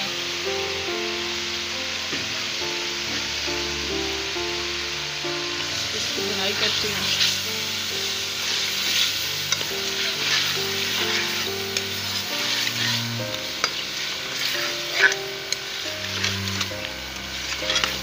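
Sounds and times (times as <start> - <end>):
chicken sizzling in hot oil: 0.0 - 18.0
soft background music: 0.0 - 18.0
metal spoon scraping a pot: 8.4 - 18.0.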